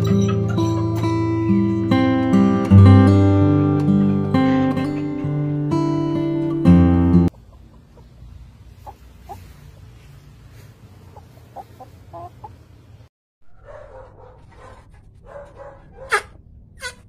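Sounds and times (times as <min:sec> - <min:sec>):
chickens clucking: 0:00.0 - 0:01.9, 0:07.2 - 0:13.0, 0:13.7 - 0:17.0
chicken squawk: 0:08.8 - 0:09.8, 0:11.0 - 0:12.6, 0:15.6 - 0:17.0.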